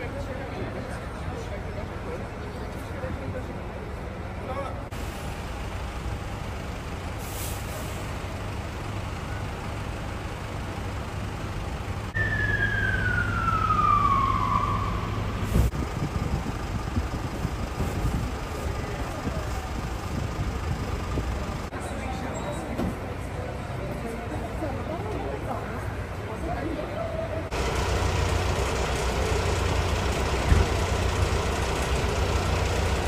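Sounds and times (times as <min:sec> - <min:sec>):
engines idling low hum: 0:00.0 - 0:33.0
street noise: 0:00.0 - 0:33.0
siren sliding down in pitch: 0:12.2 - 0:15.6.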